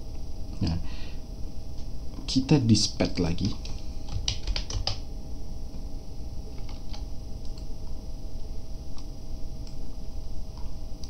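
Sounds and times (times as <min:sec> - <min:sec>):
low background hum: 0:00.0 - 0:11.0
computer keyboard keystrokes: 0:03.4 - 0:05.0, 0:06.5 - 0:07.7.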